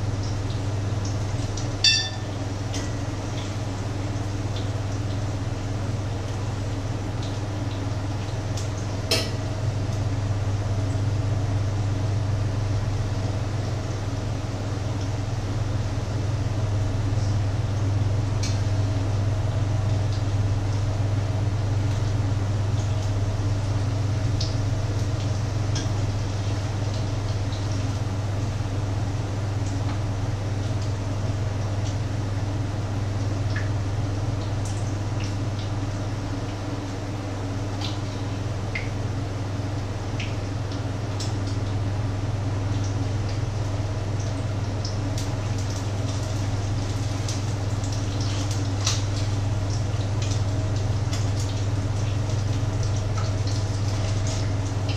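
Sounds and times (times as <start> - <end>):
steady low hum: 0.0 - 54.9
utensil clinking against pan: 1.8 - 2.3
patties sizzling in a frying pan: 42.7 - 54.9.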